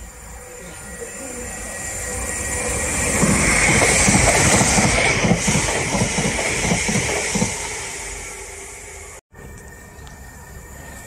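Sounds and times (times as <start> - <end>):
train rushing hiss: 0.0 - 11.0
train wheels clattering over rail joints: 3.1 - 7.7.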